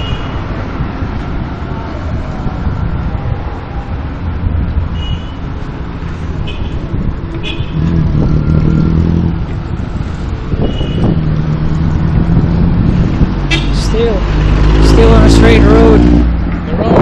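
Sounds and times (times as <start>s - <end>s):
car engines rumbling: 0.0s - 17.0s
engine hum: 5.5s - 17.0s.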